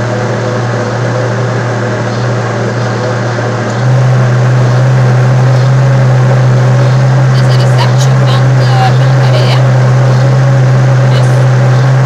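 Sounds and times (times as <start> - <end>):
blender motor running: 3.1 - 12.0.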